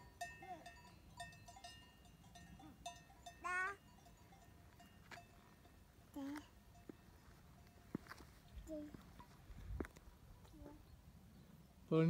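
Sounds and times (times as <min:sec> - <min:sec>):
faint cowbells clanking: 0:00.0 - 0:09.4.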